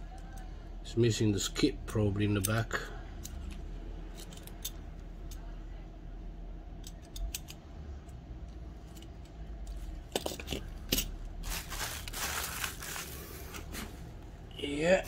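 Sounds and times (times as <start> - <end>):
metal toy cars clinking: 2.3 - 5.5, 8.8 - 11.3.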